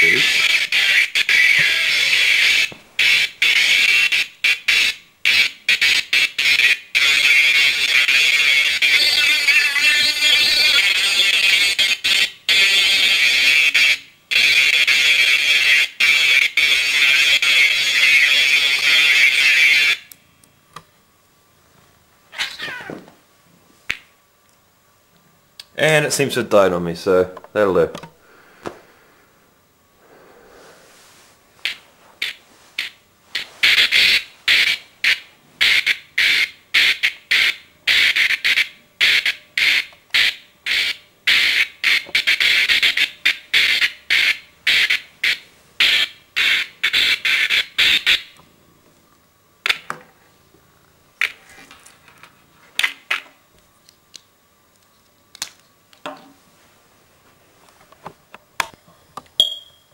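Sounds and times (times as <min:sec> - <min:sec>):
harsh electronic squawks: 0:00.0 - 0:20.1, 0:22.3 - 0:23.1, 0:31.6 - 0:48.4.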